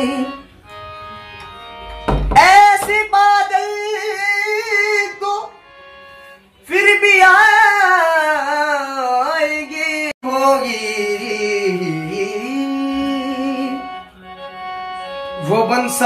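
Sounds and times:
man singing long held notes: 6.6s - 14.1s.

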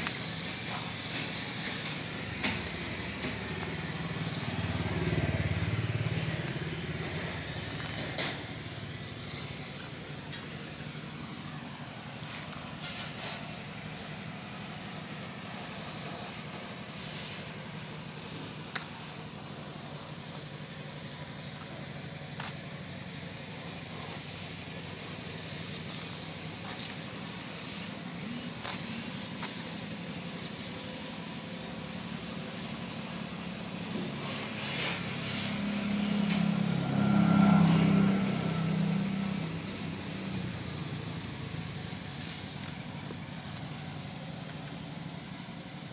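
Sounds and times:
traffic engines rumbling: 0.0s - 30.1s, 31.2s - 45.8s
vehicle passing close by: 3.2s - 9.6s, 34.1s - 41.2s.

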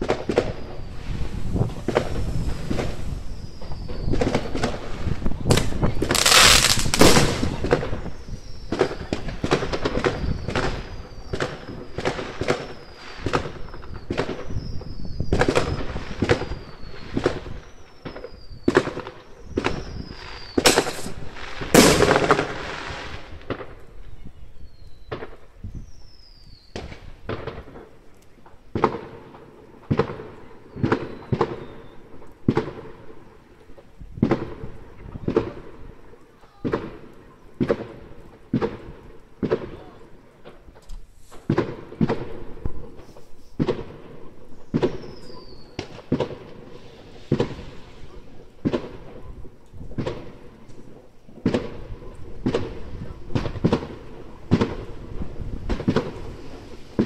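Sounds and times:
falling firework whistles: 0.0s - 27.7s, 29.9s - 32.8s, 44.6s - 49.5s
fireworks bursting and banging: 0.0s - 33.3s, 34.1s - 57.0s.

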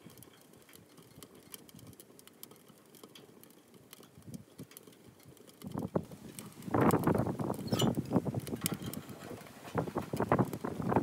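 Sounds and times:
firewood crackling and popping: 0.0s - 11.0s
wind rumble on microphone: 4.2s - 4.7s, 5.6s - 11.0s.

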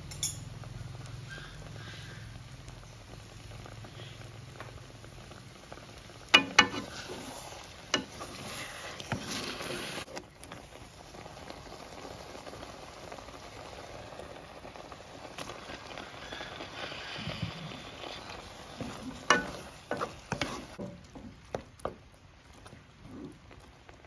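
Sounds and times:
egg sizzling in a wok: 0.0s - 24.0s
spatula scraping and knocking pan: 6.3s - 10.0s, 17.4s - 22.1s.

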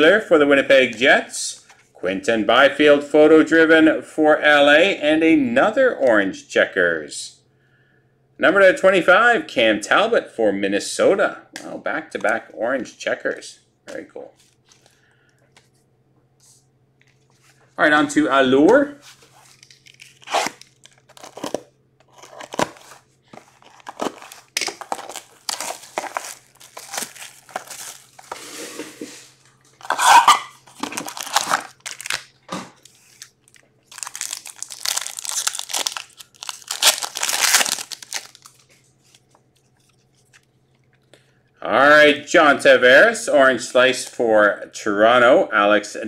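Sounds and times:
shrink wrap crinkling and tearing: 19.1s - 28.4s, 29.8s - 41.0s
foil packs ripping open: 19.4s - 28.4s, 29.8s - 38.7s.

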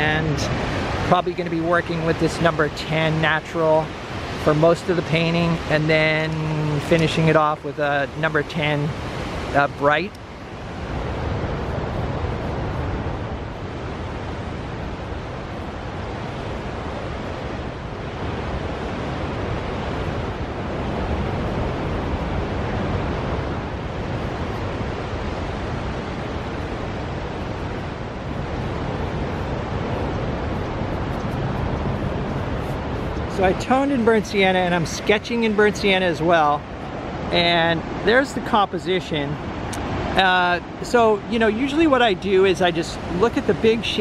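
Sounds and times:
ocean surf: 0.0s - 44.0s
wind rumbling on microphone: 0.0s - 44.0s.

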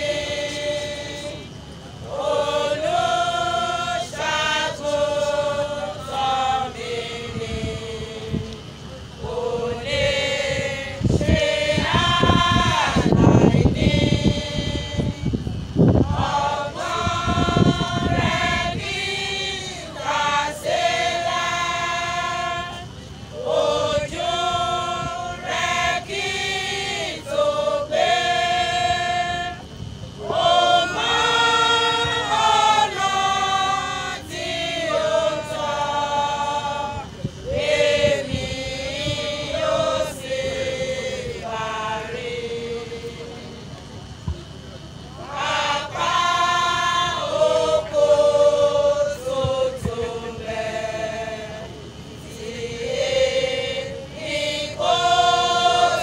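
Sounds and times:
women's choir singing a hymn: 0.0s - 56.0s.

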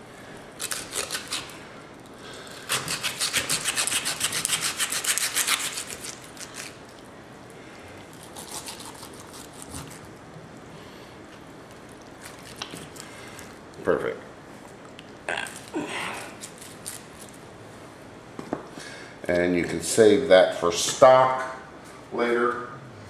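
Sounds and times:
knife sawing through bones: 2.5s - 6.8s, 8.2s - 10.0s.

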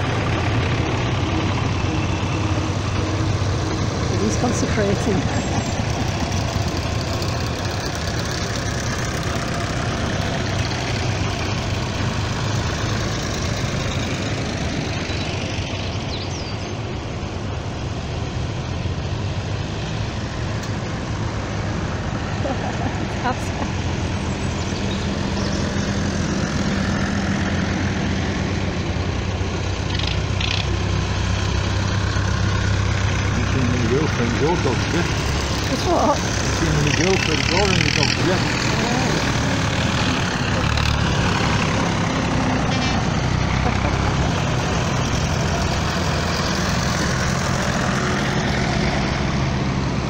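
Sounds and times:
tractor engines passing: 0.0s - 50.0s.

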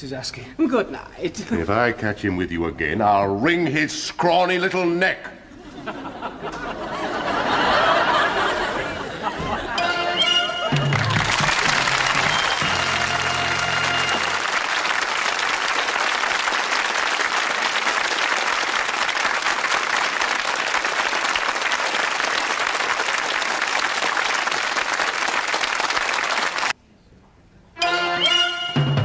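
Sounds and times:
music: 9.4s - 14.5s, 27.8s - 29.0s
studio audience applauding: 10.7s - 26.8s.

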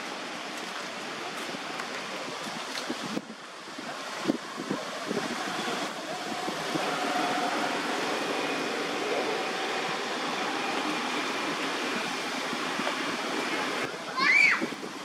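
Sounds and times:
outdoor background hiss: 3.2s - 15.0s
faint high constant tones: 5.3s - 14.0s.

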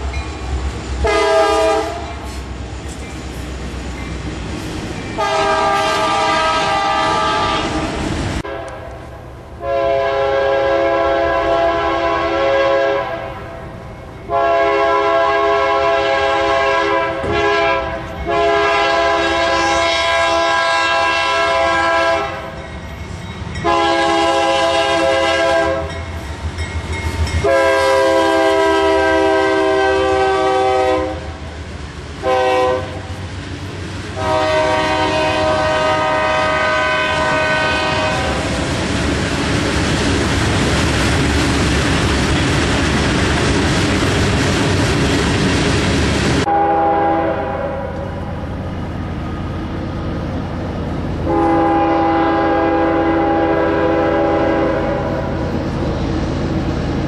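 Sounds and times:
freight cars rumbling on rails: 0.0s - 57.0s
locomotive horn blasts: 1.0s - 2.2s, 5.2s - 9.0s, 9.6s - 13.6s, 14.3s - 22.6s, 23.6s - 26.0s, 27.4s - 31.4s, 32.2s - 33.1s, 34.2s - 38.5s, 46.4s - 48.2s, 51.2s - 55.5s.

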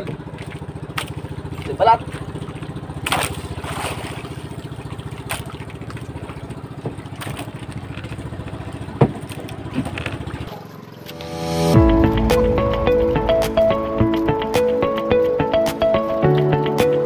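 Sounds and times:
small boat engine puttering: 0.0s - 17.0s
sharp knocks: 9.0s - 9.3s.

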